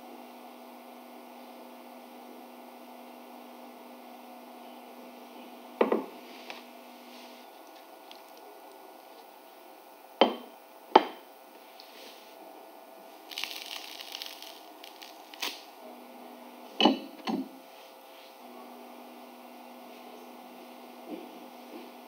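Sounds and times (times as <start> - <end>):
tortilla wrap crackling: 7.4 - 9.3, 13.2 - 15.7.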